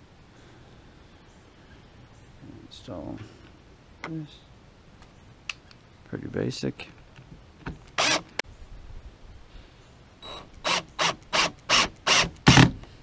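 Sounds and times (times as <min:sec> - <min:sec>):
cordless drill driving screw: 0:08.0 - 0:08.4, 0:10.3 - 0:12.7.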